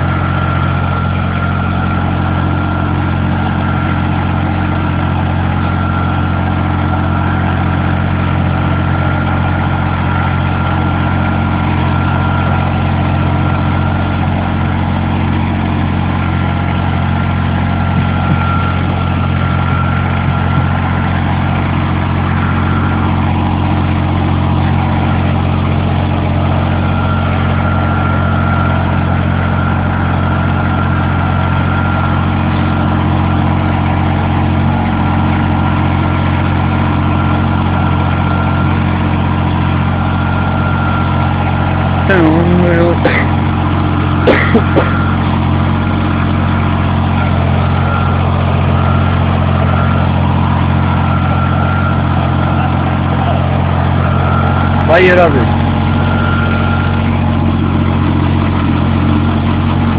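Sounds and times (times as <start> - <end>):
thin whine: 0.0 - 59.9
tractor diesel engine running: 0.0 - 59.9.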